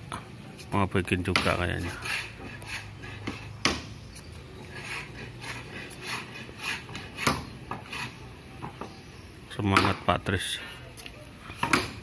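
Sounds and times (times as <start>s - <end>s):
boards scraping: 0.6s - 9.0s.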